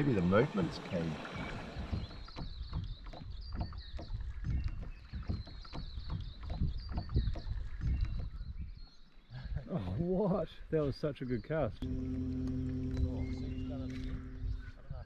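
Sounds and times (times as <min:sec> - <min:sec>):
water splashing: 0:00.0 - 0:08.4
low rumble: 0:11.8 - 0:15.0.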